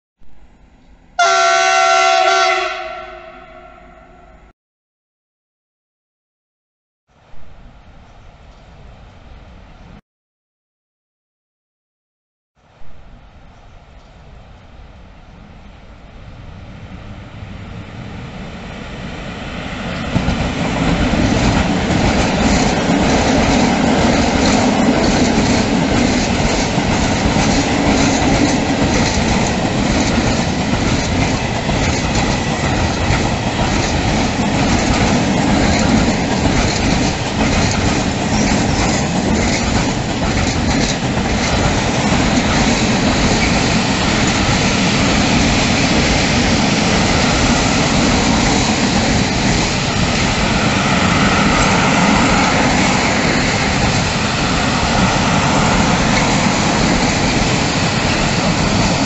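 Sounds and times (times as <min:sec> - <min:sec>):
electric locomotive passing: 0:12.7 - 0:59.0
wheels clicking over rail joints: 0:20.1 - 0:44.7.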